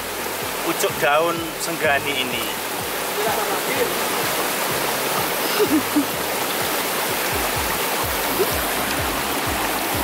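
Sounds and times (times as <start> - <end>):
stream rushing over rocks: 0.0 - 10.0.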